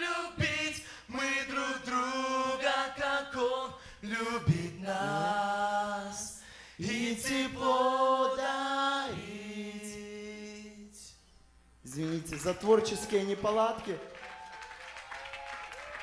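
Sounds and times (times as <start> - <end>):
group singing a cappella: 0.0 - 11.2.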